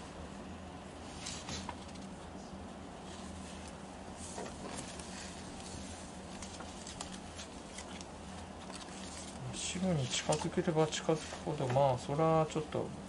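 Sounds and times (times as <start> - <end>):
low electrical hum: 0.0 - 13.0
fabric samples rustling: 1.0 - 12.7.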